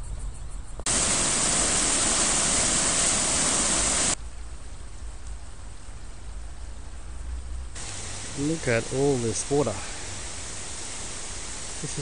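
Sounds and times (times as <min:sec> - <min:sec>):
water rushing: 0:00.9 - 0:04.2, 0:07.8 - 0:12.0.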